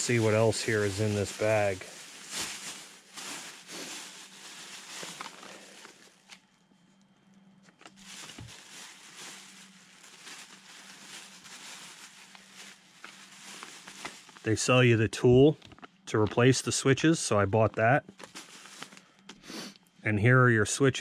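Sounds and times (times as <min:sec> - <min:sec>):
plastic bag rustling: 0:00.0 - 0:06.5, 0:07.8 - 0:16.5, 0:18.1 - 0:19.3.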